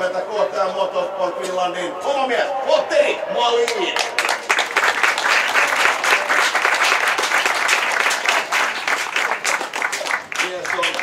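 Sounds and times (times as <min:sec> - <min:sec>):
crowd applauding: 0:03.6 - 0:11.0.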